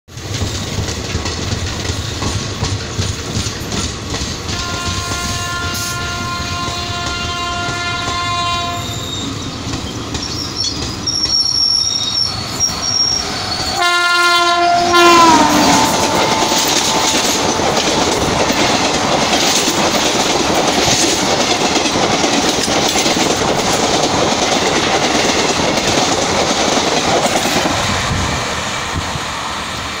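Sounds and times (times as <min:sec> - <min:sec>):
train wheels clattering: 0:00.1 - 0:14.0, 0:14.9 - 0:30.0
train horn blasts: 0:04.5 - 0:09.2, 0:13.7 - 0:17.6
short high horn toots: 0:04.6 - 0:09.4, 0:13.6 - 0:17.2.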